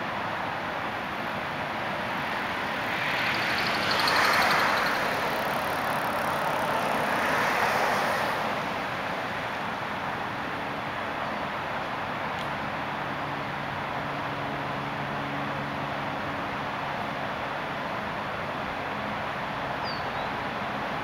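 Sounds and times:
vehicles passing on street: 0.0 - 21.0
rapid ticking: 3.0 - 7.3.

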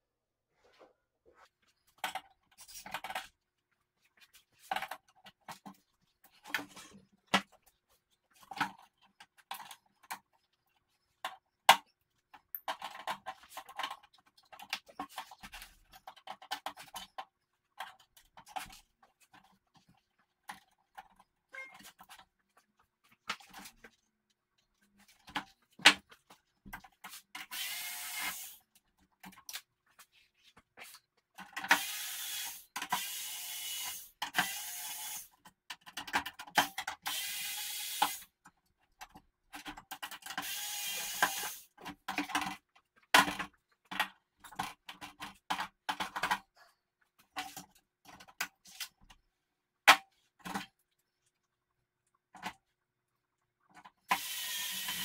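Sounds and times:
clicks and knocks of metal parts: 1.9 - 3.5, 4.2 - 27.5, 35.3 - 37.1, 38.0 - 40.5, 41.2 - 49.2
electric screwdriver whirring: 27.5 - 28.6, 31.7 - 35.3, 37.1 - 38.2, 40.4 - 41.6, 54.1 - 55.0.

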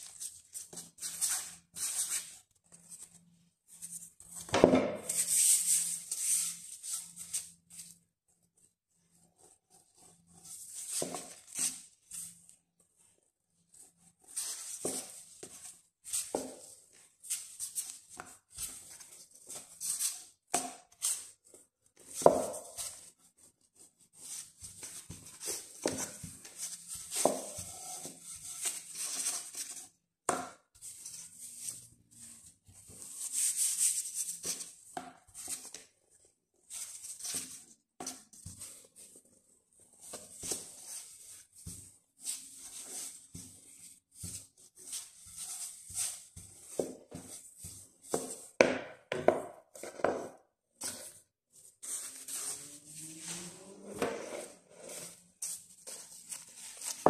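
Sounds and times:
rolling pin rustling over dough: 8.9 - 57.0.

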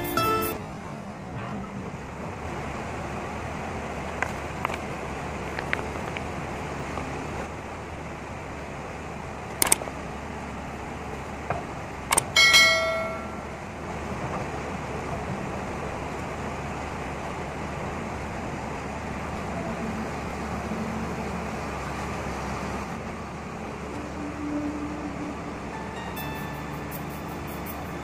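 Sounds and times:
bell ding sound effect: 0.0 - 0.6, 12.4 - 13.5, 25.8 - 28.0
machinery running: 0.0 - 4.0, 18.7 - 28.0.

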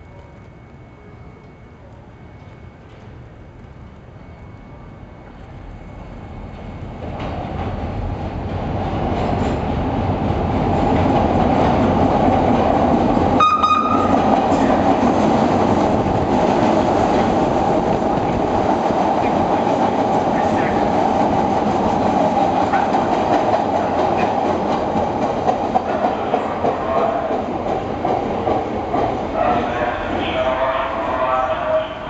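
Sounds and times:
subway train rumbling past: 0.0 - 32.0
train horn: 13.4 - 14.7, 29.3 - 32.0.

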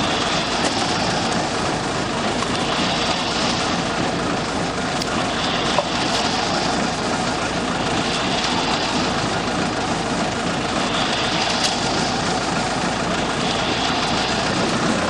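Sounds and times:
diesel engine running: 0.0 - 15.0.

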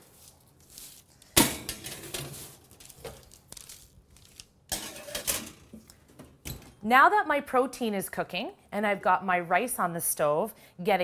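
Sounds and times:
metal sheet pans clattering: 1.4 - 3.2, 4.7 - 6.8.

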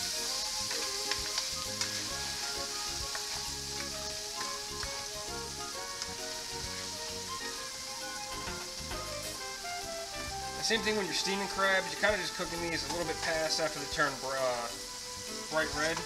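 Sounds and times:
background music: 0.0 - 16.0
crabs sizzling in a frying pan: 0.0 - 16.0.

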